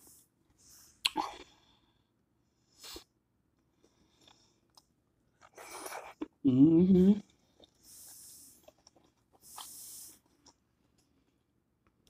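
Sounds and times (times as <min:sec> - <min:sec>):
person eating: 0:03.8 - 0:10.6.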